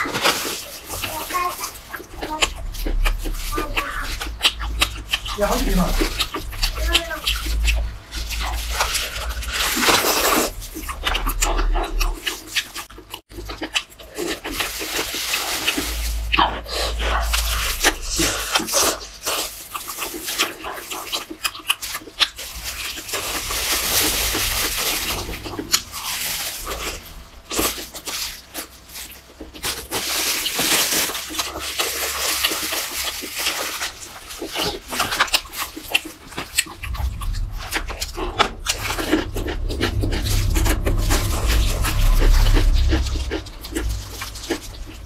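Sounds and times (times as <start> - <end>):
crunchy food chewing: 0.0 - 45.0.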